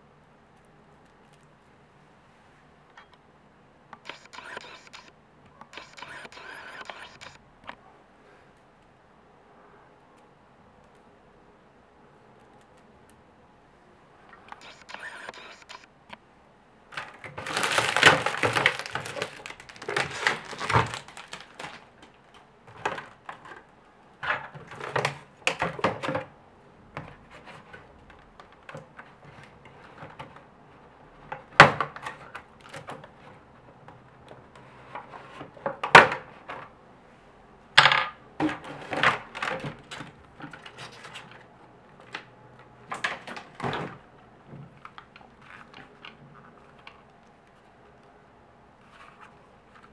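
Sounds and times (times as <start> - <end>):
plastic film crinkling: 17.0 - 22.4.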